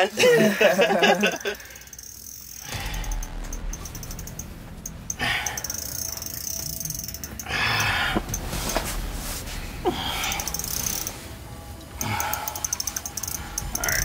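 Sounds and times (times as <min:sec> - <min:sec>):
fishing reel clicking and whirring: 0:01.4 - 0:03.2, 0:05.1 - 0:08.2, 0:10.3 - 0:11.1, 0:12.0 - 0:14.0.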